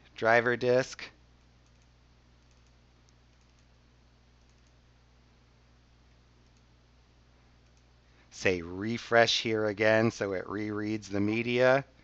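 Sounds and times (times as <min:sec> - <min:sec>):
faint steady hum: 0:00.0 - 0:12.0
computer mouse clicks: 0:01.6 - 0:03.8, 0:04.4 - 0:04.8, 0:06.4 - 0:06.7, 0:07.6 - 0:07.9.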